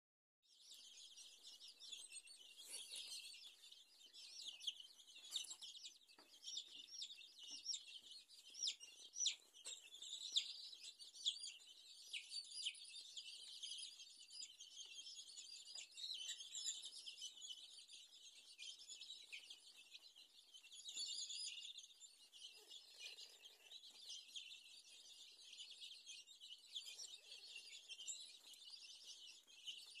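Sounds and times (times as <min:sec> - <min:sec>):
chicks peeping: 0:00.5 - 0:30.0.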